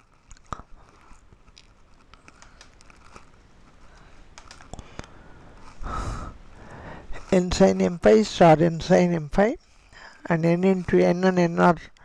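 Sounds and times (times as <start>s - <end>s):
rustling noise: 0.0s - 12.0s
computer mouse clicks: 4.3s - 5.2s.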